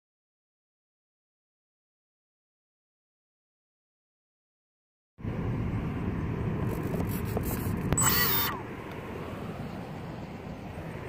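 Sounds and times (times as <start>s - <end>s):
low outdoor rumble: 5.2s - 11.0s
loud pitched call: 8.0s - 8.6s.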